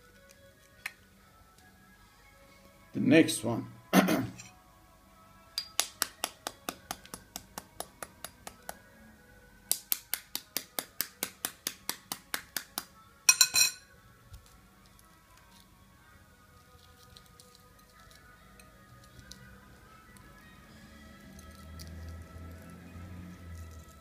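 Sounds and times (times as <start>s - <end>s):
spoon tapping egg shell: 5.6s - 8.8s.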